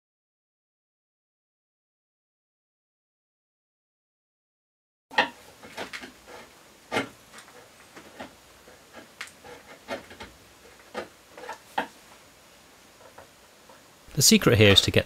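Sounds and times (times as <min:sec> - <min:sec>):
chisel scraping wood: 0:05.1 - 0:11.9.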